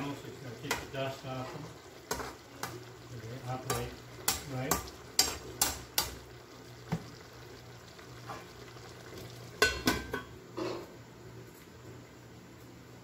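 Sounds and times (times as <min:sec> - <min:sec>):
faint sizzle: 0:00.0 - 0:13.0.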